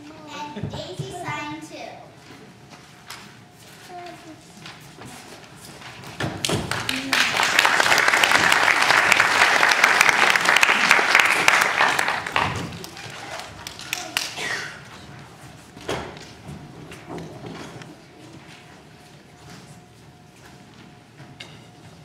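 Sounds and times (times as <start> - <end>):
audience applauding: 6.5 - 14.5.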